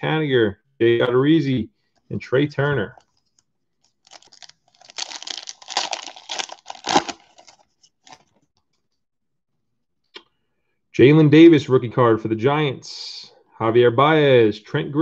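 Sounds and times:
foil wrapper tearing and crinkling: 4.0 - 8.2.

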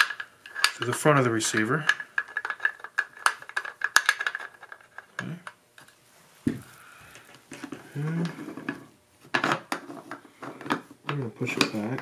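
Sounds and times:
low voice hum: 7.6 - 8.9.

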